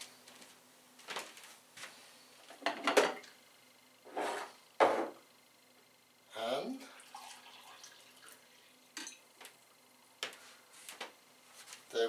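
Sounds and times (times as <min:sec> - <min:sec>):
objects knocking on kitchen counter: 0:02.6 - 0:03.2, 0:04.8 - 0:05.2.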